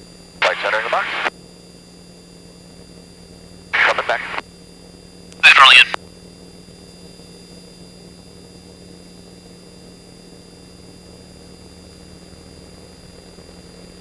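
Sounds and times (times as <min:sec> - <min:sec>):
aircraft engine drone in cockpit: 0:00.0 - 0:14.0
electrical hum: 0:00.2 - 0:04.5, 0:05.4 - 0:06.0.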